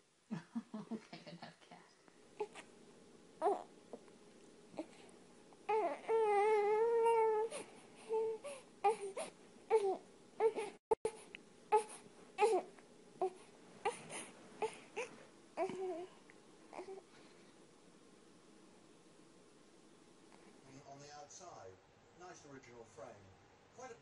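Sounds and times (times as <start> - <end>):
baby crying: 3.4 - 3.7, 5.7 - 10.8, 11.7 - 17.0.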